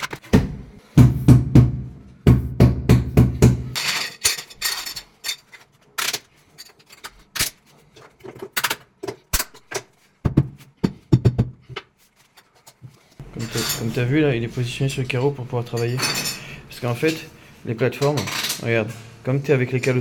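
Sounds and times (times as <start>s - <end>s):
rubber mallet thudding on tile: 0.2s - 3.8s, 10.2s - 11.8s.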